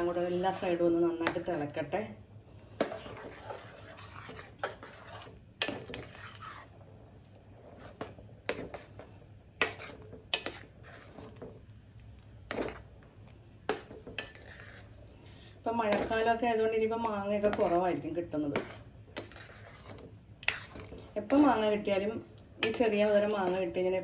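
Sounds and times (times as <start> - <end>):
spoon scraping metal pot: 0.0 - 1.7, 2.8 - 6.8, 7.6 - 11.6, 12.5 - 12.9, 13.7 - 15.1, 15.7 - 21.9, 22.6 - 23.9.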